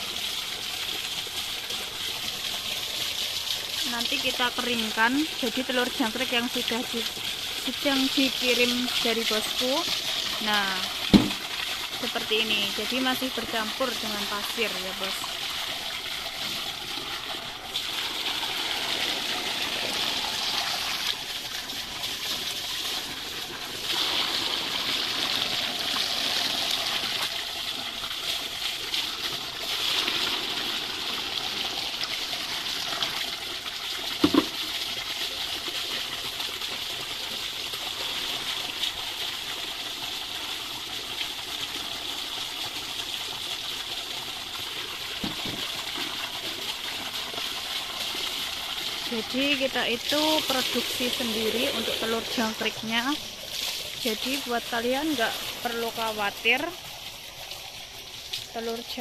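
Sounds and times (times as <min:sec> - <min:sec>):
water pouring onto sand: 0:00.0 - 0:59.0
short knock: 0:11.1 - 0:11.4.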